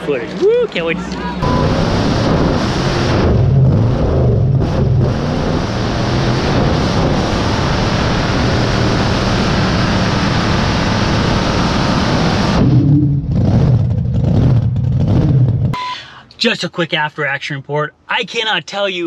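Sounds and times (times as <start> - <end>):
truck engine running hard: 0.0 - 14.0.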